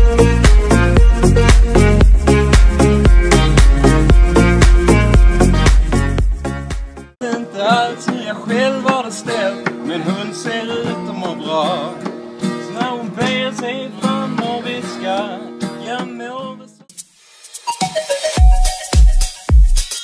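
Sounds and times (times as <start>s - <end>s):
acoustic guitar strumming: 0.0s - 16.8s
man singing: 7.2s - 16.9s.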